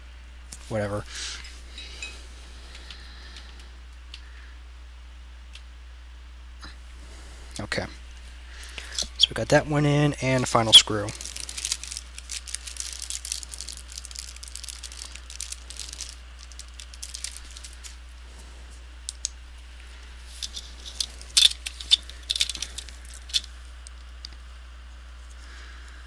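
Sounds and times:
plastic film crinkling: 0:10.4 - 0:18.3, 0:19.0 - 0:24.5.

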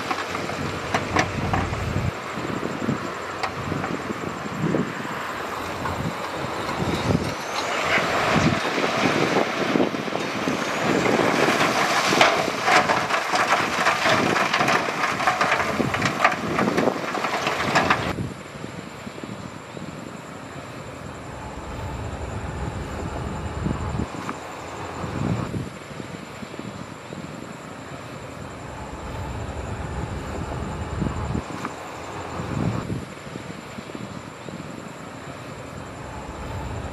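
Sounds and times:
rattling and clatter: 0:00.0 - 0:02.1, 0:05.6 - 0:18.2
heavy diesel engine: 0:00.0 - 0:36.9
low engine rumble: 0:00.0 - 0:36.9.

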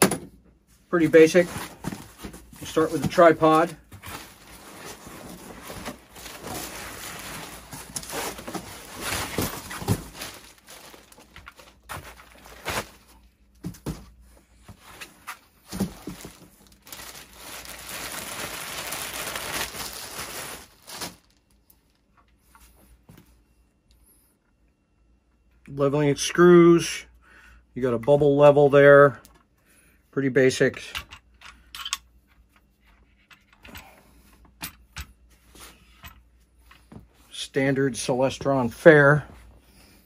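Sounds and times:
plastic wrap crinkling: 0:02.6 - 0:13.2, 0:15.6 - 0:22.0.

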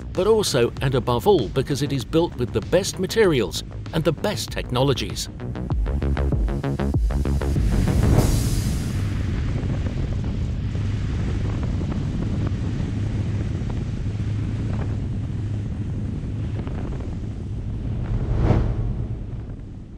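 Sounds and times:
wind rushing: 0:07.2 - 0:15.6, 0:16.3 - 0:19.9
boat engine drone: 0:07.7 - 0:19.9.

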